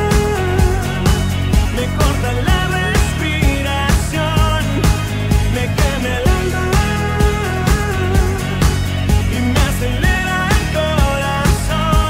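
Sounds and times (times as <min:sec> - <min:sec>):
background pop music: 0:00.0 - 0:12.0.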